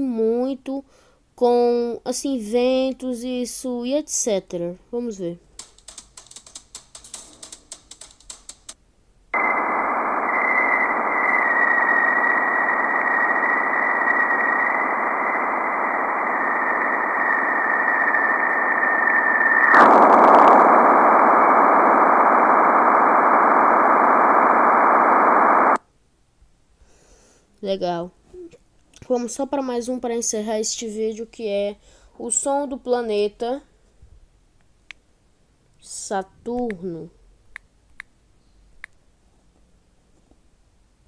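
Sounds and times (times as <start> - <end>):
high whistling tone: 9.4 - 25.8.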